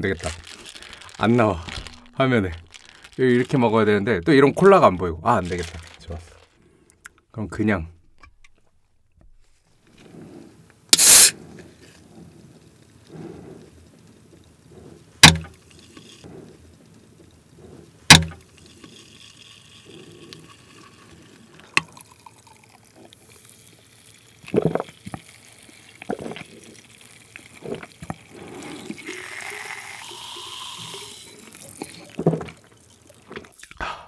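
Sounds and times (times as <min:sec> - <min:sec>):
faint fizzing: 0:09.9 - 0:33.8
can pull-tab popping open: 0:11.0 - 0:11.3
gulping: 0:26.0 - 0:34.0.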